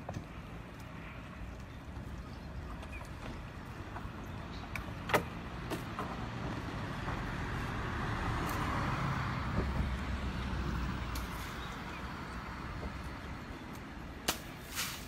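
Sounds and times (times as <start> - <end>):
water streaming off a net: 14.3 - 15.0.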